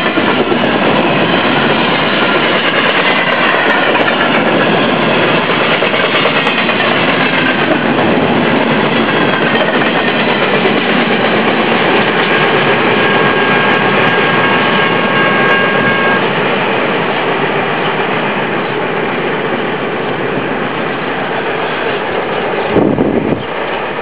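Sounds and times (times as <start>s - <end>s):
freight cars rumbling on rails: 0.0s - 24.0s
thin high squeal: 13.0s - 16.3s.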